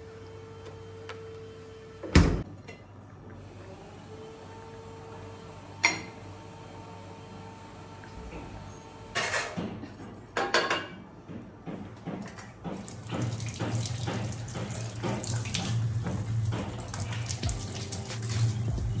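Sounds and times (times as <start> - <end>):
tap water running into sink: 12.3 - 19.0.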